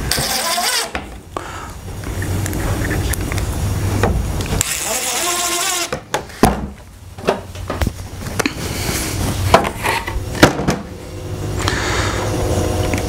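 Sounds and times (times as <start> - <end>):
cordless drill driving screw: 0.1 - 1.0, 4.6 - 6.0.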